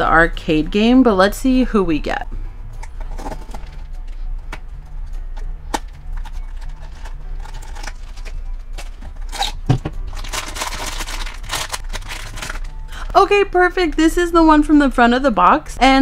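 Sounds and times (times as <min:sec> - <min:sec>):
foil and plastic bag rustling: 0:06.2 - 0:13.0.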